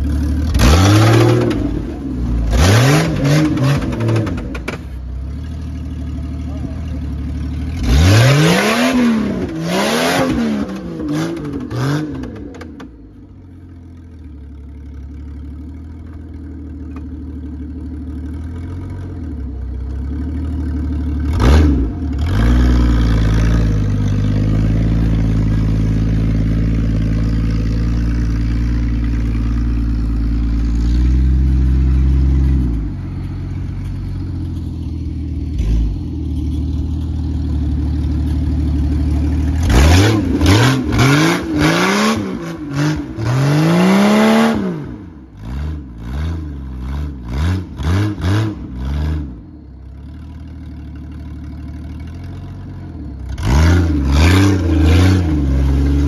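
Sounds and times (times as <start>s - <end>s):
car engine revving: 0.0s - 5.4s, 6.5s - 13.3s, 21.2s - 49.6s, 53.2s - 56.0s.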